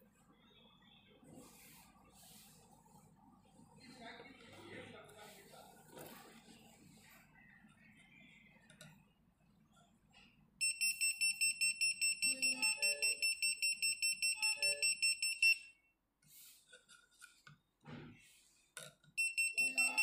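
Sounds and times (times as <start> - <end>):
rapid high-pitched alarm beeping: 10.6 - 15.7, 19.2 - 20.0.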